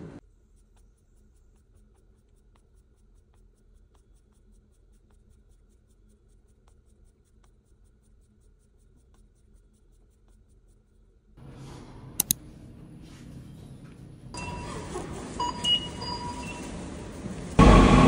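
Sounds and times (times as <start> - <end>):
faint quick light clicks: 12.2 - 12.4.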